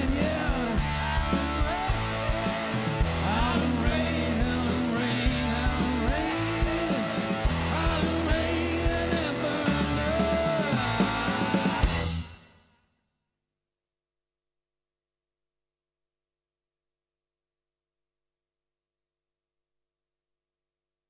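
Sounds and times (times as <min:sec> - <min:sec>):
bass guitar: 0:00.0 - 0:12.4
drum kit with cymbals: 0:00.0 - 0:12.6.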